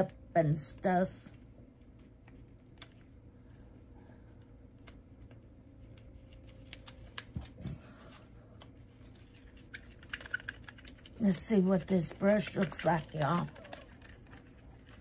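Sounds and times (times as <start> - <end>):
faint steady hum: 0.0 - 15.0
packaging clicks and rustles: 12.1 - 15.0.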